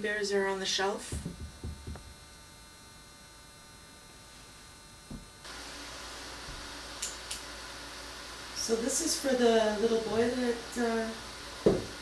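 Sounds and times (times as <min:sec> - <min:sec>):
faint electrical hum: 0:00.0 - 0:12.0
soft thump: 0:01.1 - 0:02.1, 0:11.6 - 0:11.9
steady hiss: 0:05.4 - 0:12.0.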